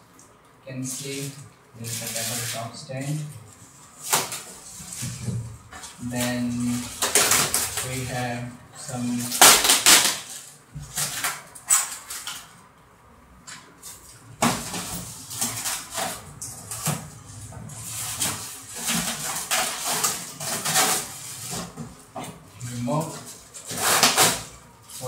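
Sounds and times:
plastic rustling: 0.8 - 12.7, 13.4 - 25.0
foam scraping against foam: 0.9 - 5.4.

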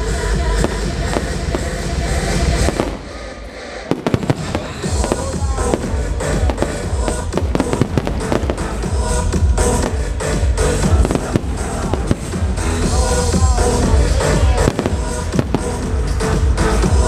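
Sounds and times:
fireworks banging and crackling: 0.0 - 17.0
music: 0.0 - 17.0.

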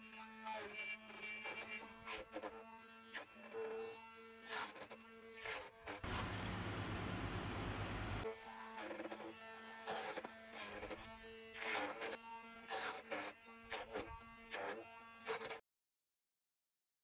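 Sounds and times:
stick blender motor humming: 6.0 - 8.2.

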